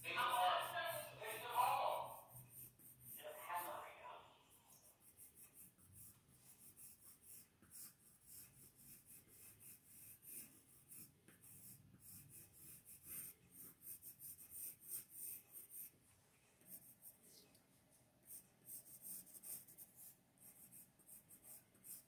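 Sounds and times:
pencil sketching on paper: 0.0s - 17.3s, 18.2s - 22.0s.

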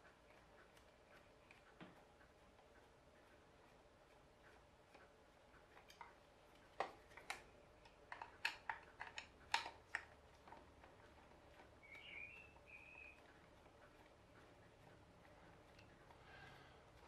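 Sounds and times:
screwdriver clicking on plastic: 6.8s - 12.1s.

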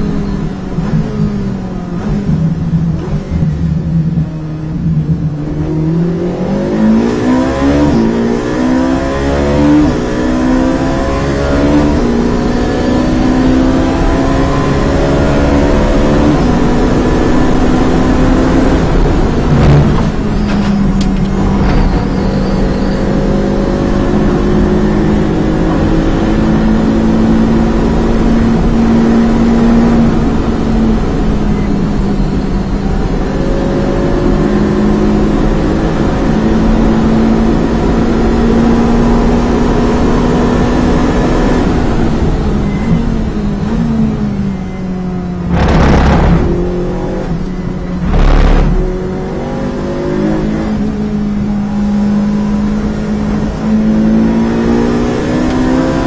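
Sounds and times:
race car engine accelerating: 0.0s - 56.0s
sharp knock: 45.5s - 47.1s.

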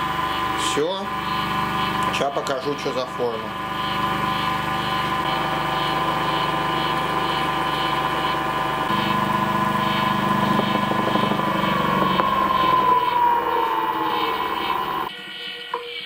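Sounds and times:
electric motor whine and hum: 0.0s - 16.0s.

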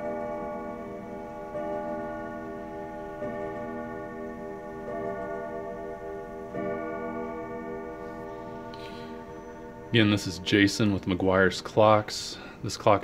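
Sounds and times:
clock striking deep chimes: 0.0s - 13.0s.

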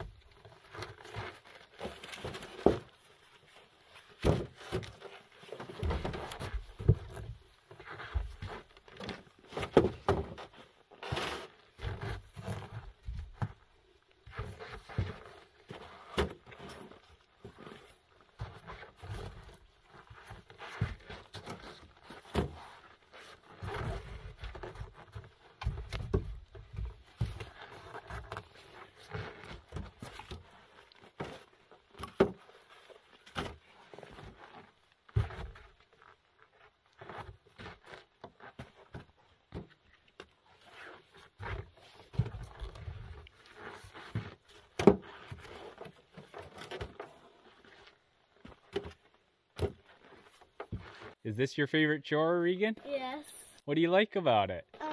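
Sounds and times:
firewood logs knocking and clattering: 4.2s - 7.4s, 8.0s - 10.5s, 23.7s - 28.5s, 44.0s - 47.3s, 48.4s - 51.0s.

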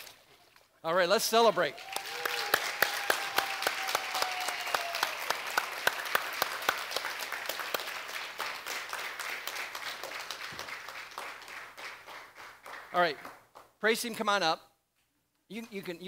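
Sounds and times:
crowd applauding: 1.5s - 13.6s.

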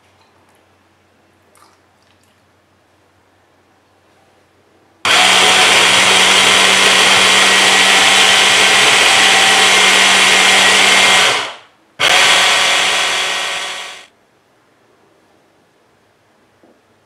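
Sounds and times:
hand blender motor running: 5.1s - 14.1s.

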